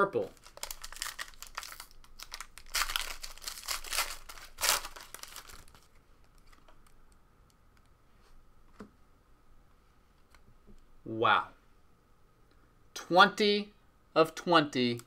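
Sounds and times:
foil wrapper crinkling and tearing: 0.2s - 7.0s.

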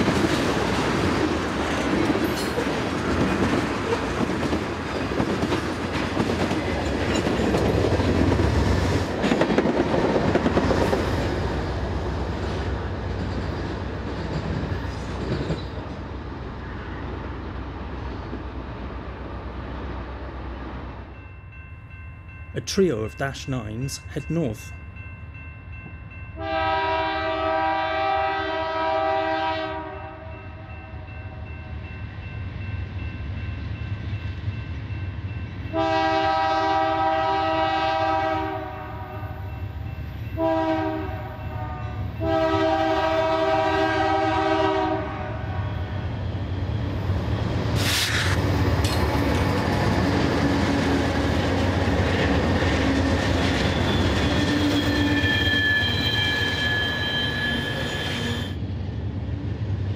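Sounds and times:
diesel locomotive air horn: 26.4s - 30.4s, 35.7s - 39.3s, 40.4s - 46.0s
high steady wheel squeal: 53.5s - 58.6s.

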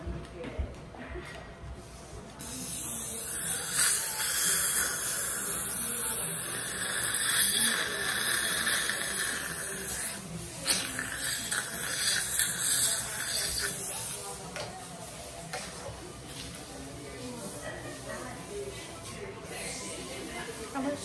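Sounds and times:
dental water spray and suction hiss: 2.4s - 14.4s.

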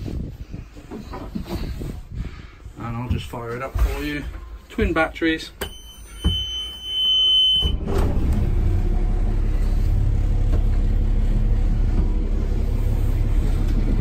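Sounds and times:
boat diesel engine idling: 8.3s - 14.0s.

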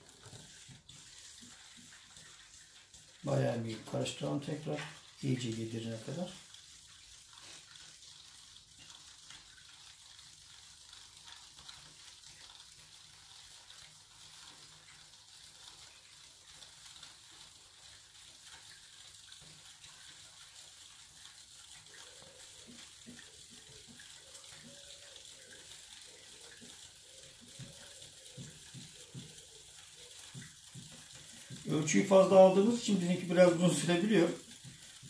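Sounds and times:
stirring in a metal bowl: 0.0s - 7.9s, 21.9s - 35.0s
faint fizzing: 0.0s - 35.0s.

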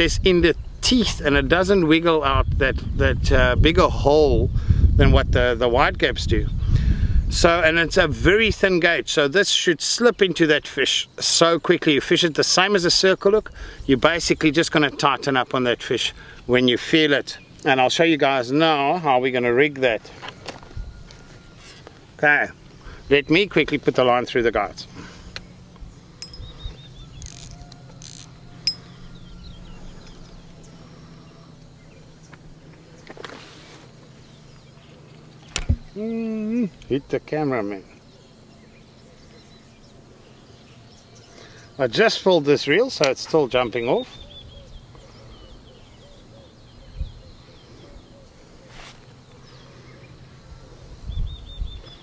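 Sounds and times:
birds chirping: 6.3s - 52.0s
fishing reel click: 27.2s - 28.3s
fishing reel rasps: 27.2s - 28.8s
low thumps: 35.4s - 36.0s.

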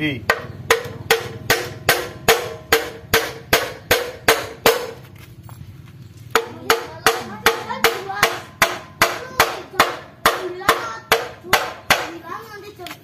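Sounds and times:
hammer striking steel: 0.3s - 5.0s, 6.3s - 12.2s.

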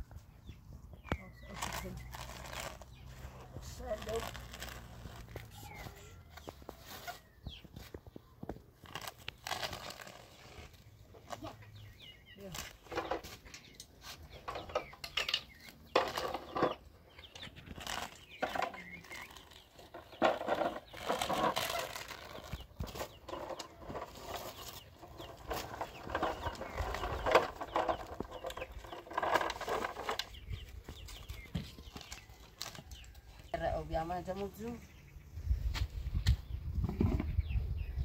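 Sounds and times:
flatbread sheets crackling: 1.4s - 6.4s, 8.7s - 11.6s.

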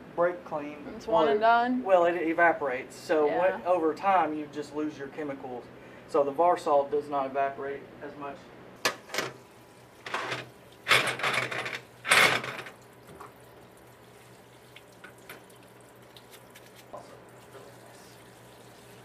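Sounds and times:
solvent splashing in a tub: 12.7s - 19.0s.

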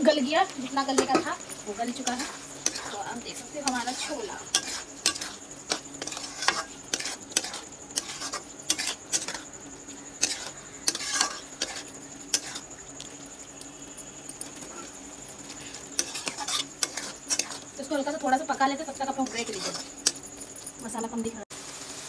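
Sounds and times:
frying sizzle: 0.0s - 22.0s
metal spatula scraping a pan: 0.8s - 12.7s, 15.6s - 20.2s.

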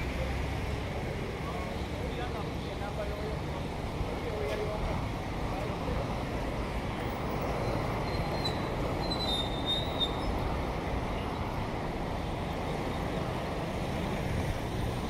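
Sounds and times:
brake squeal: 7.1s - 11.4s.

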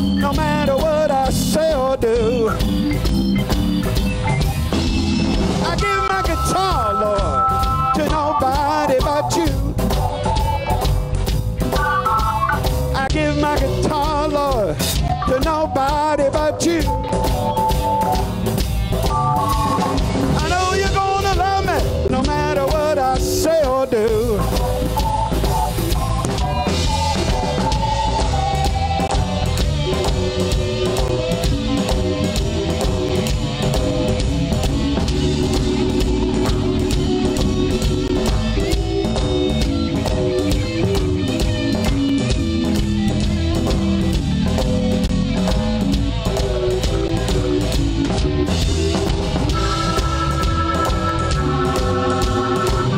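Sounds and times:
bass guitar: 0.0s - 52.9s
drum kit: 0.0s - 52.9s.

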